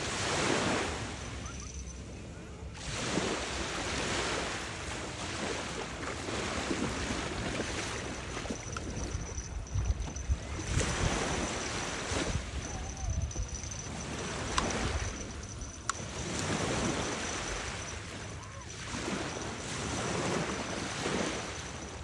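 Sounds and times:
small waves washing onto beach: 0.0 - 22.0
wind buffeting microphone: 6.7 - 18.1.

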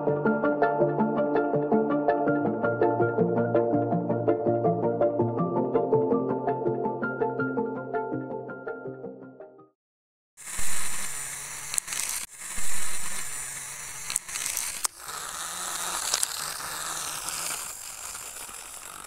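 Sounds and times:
background music: 0.0 - 9.7
small electric motors humming: 10.4 - 19.0.

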